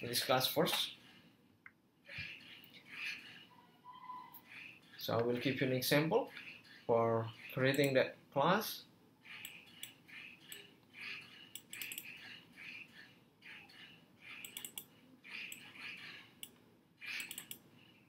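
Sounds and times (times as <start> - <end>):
faint bird chirps: 2.4 - 4.7
computer mouse clicks: 7.7 - 7.9, 9.3 - 10.7, 11.5 - 12.2, 14.3 - 15.7, 16.4 - 17.6.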